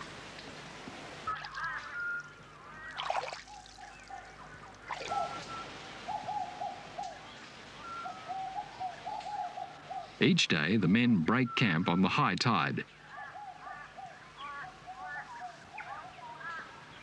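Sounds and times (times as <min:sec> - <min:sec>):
faint steady hiss: 0:00.0 - 0:17.0
birds chirping and whistling: 0:05.0 - 0:12.0.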